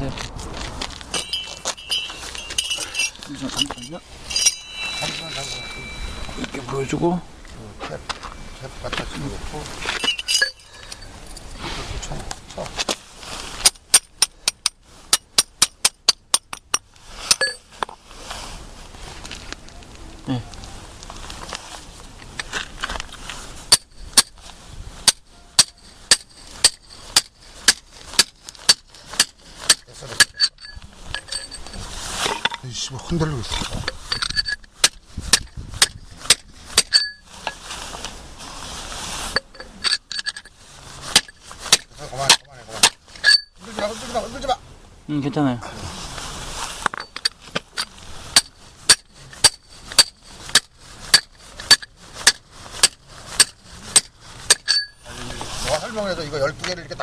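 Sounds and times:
hammer striking steel rod: 1.1s - 3.1s, 25.0s - 30.6s, 48.4s - 55.0s
hammer clinking on metal tool: 1.1s - 6.9s, 10.0s - 11.1s, 13.9s - 17.6s, 25.1s - 27.8s, 28.7s - 31.8s, 52.8s - 55.1s
hard ringing hammer blow: 4.2s - 7.0s.

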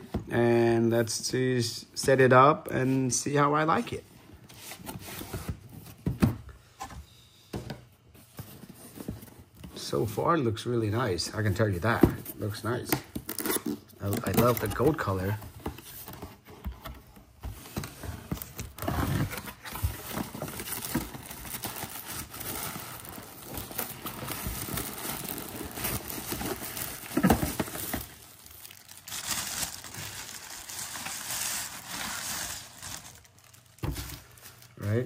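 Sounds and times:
plastic wrapping crinkling: 13.2s - 15.4s, 18.3s - 35.0s.

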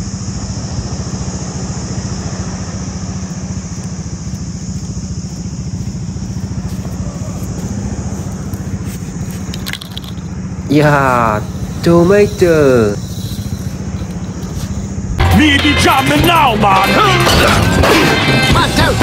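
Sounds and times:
engine idling: 0.0s - 19.0s.

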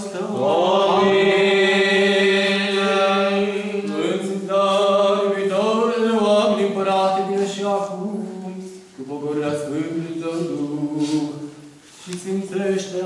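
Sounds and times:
voices chanting: 0.0s - 6.6s.

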